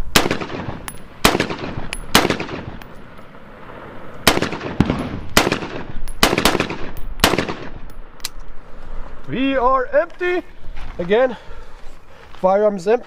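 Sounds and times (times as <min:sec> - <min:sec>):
rifle gunshots: 0:00.1 - 0:02.9, 0:04.2 - 0:07.9.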